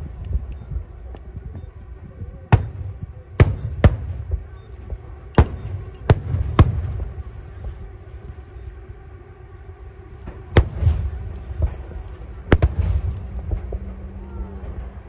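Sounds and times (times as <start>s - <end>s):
low rolling rumble: 0.0s - 15.0s
firework shells bursting: 2.5s - 7.2s.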